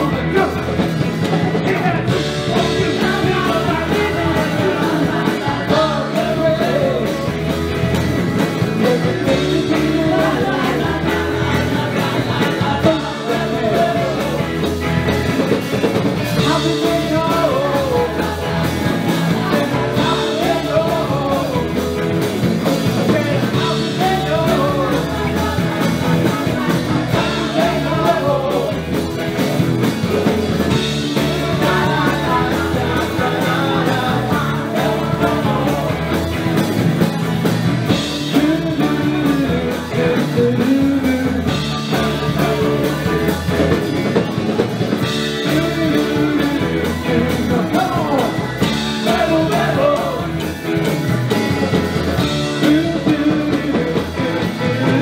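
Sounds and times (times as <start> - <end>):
lead singer: 0.0 - 55.0
live rock band playing: 0.0 - 55.0.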